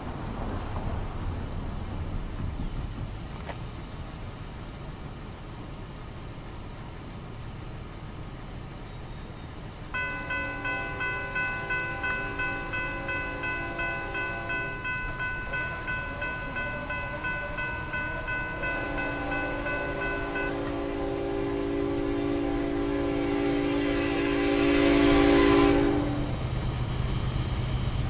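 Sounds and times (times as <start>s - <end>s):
distant train horn blasts: 9.9s - 28.0s
railroad crossing bell ringing: 9.9s - 28.0s.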